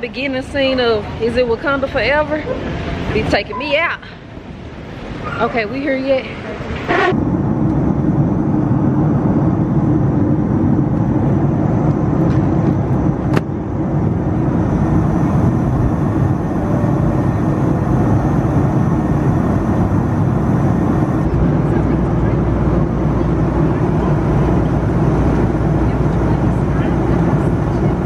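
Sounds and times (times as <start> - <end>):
airliner cabin rumble: 0.6 - 28.0.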